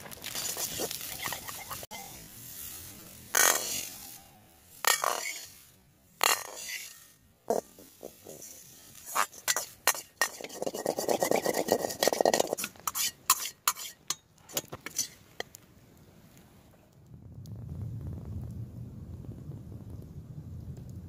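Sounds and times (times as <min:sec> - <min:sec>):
metal ladle scraping a wok: 0:00.3 - 0:04.2, 0:04.8 - 0:15.5.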